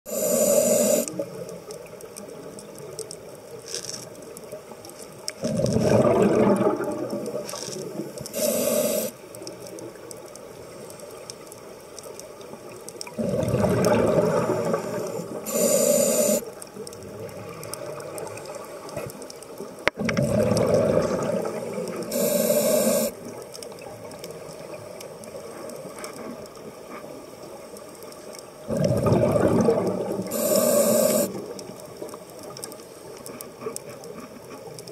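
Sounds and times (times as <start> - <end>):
regulator hissing inhale: 0.1 - 1.1, 8.3 - 9.2, 14.4 - 16.5, 22.0 - 23.2, 30.3 - 31.4
exhaled bubbles rushing: 5.4 - 8.2, 13.1 - 15.5, 20.0 - 22.3, 28.7 - 31.7.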